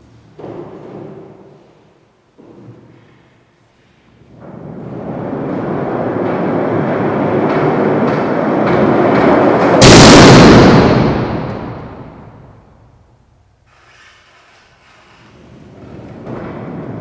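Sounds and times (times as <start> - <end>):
very loud boom: 7.0 - 13.0
deep rumble: 9.8 - 12.6.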